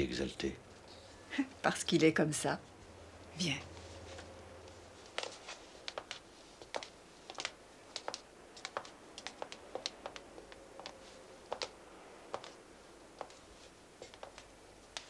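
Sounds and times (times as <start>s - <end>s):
heel clicks on hard floor: 5.2s - 10.2s.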